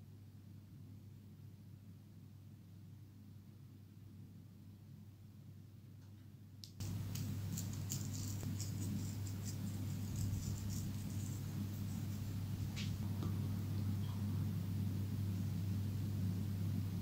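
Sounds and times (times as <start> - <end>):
steady low hum: 0.0 - 17.0
herb flakes sprinkling: 6.8 - 13.0.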